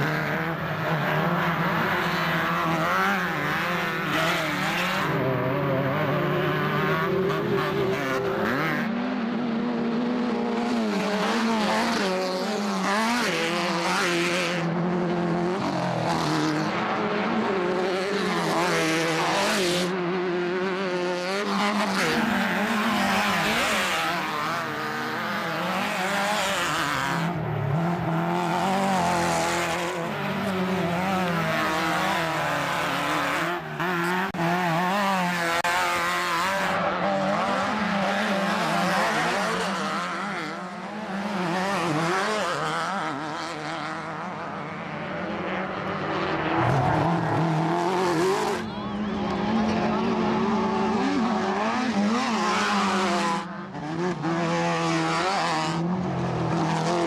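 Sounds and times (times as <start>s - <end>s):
buggy engines revving past: 0.0s - 57.0s.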